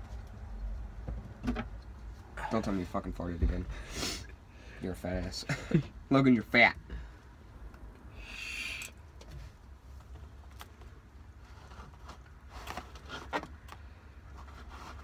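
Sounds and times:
short breathy hiss: 8.1 - 9.0.

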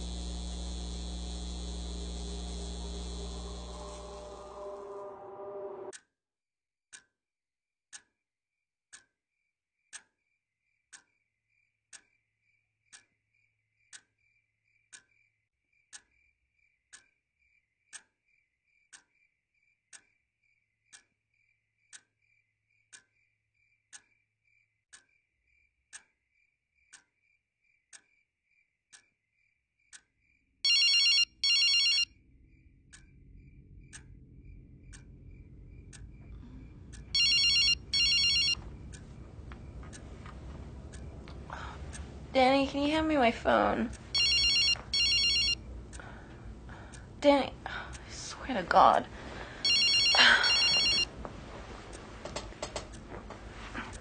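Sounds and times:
phone ringing: 30.7 - 32.1, 37.1 - 38.6, 44.1 - 45.7, 49.6 - 51.1
low rumble: 32.8 - 37.2, 38.6 - 44.2
clock ticking: 32.9 - 54.0.

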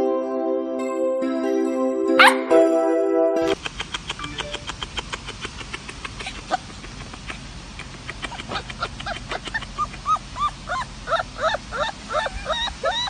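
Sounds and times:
puppy yipping and whimpering: 8.2 - 13.0.

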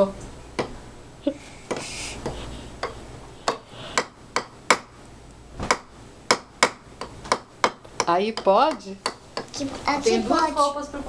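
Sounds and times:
toy hammer knocking on wood: 1.7 - 4.9, 5.7 - 9.5.

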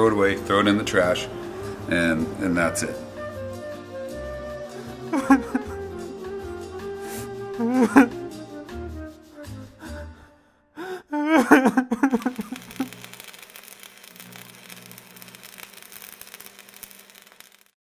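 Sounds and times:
man sobbing and crying out: 7.5 - 8.2, 10.8 - 12.6.

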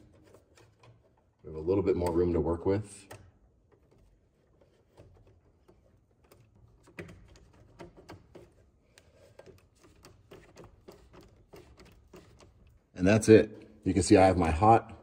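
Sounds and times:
screwdriver clicks and scrapes: 3.1 - 12.8.

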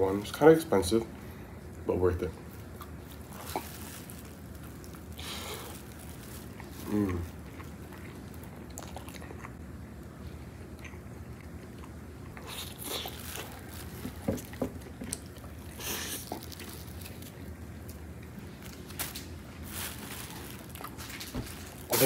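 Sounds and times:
chewing and biting food: 2.5 - 9.6, 10.5 - 18.9, 20.3 - 22.0.

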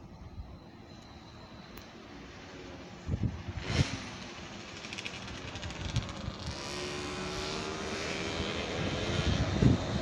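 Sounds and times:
electric locomotive whine: 0.0 - 10.0.

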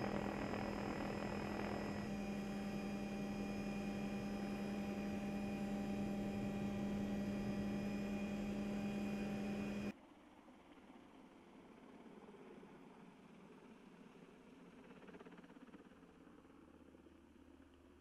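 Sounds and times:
helicopter droning hum: 0.0 - 9.9, 14.8 - 16.7
high steady whines: 0.0 - 9.9.

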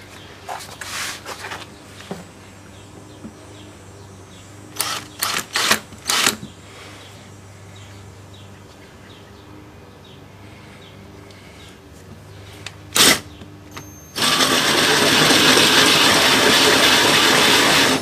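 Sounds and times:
cordless drill with hole saw: 4.8 - 6.4, 13.0 - 13.3, 14.1 - 18.0.

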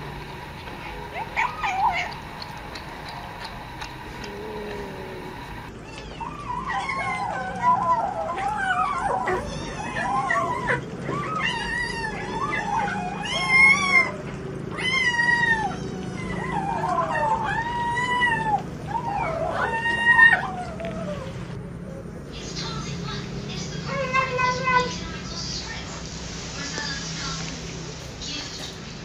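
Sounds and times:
cat yowling: 0.8 - 2.2, 3.8 - 21.4.

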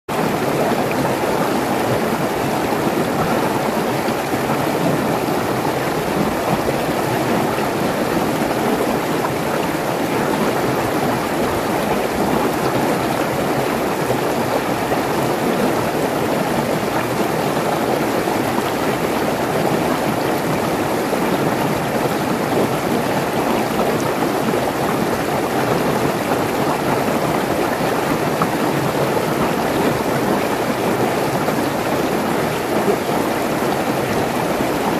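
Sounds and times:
stream rushing over rocks: 0.1 - 34.9.

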